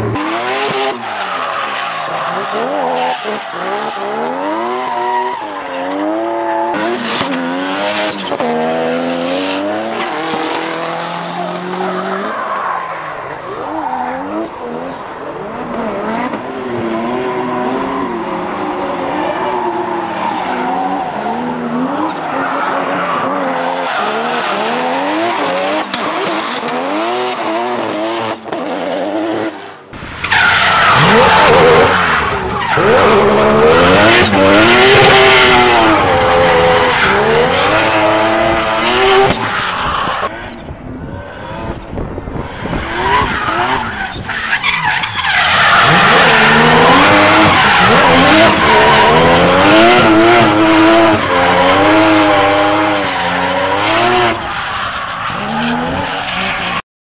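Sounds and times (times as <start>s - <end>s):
tyres skidding and squealing: 0.0s - 56.8s
rotary engine revving: 30.1s - 40.3s, 41.4s - 54.4s.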